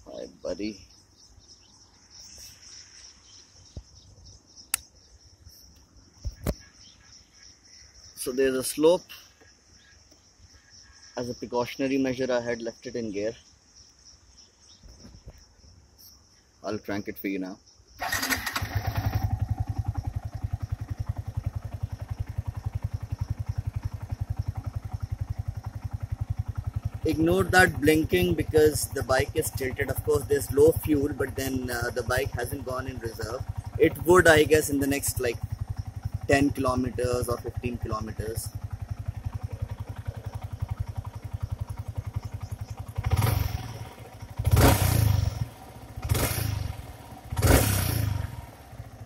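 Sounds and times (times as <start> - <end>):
high-pitched insect chorus: 0.0 - 44.4
motorcycle engine idling: 0.0 - 49.0
sharp click: 4.7 - 5.0.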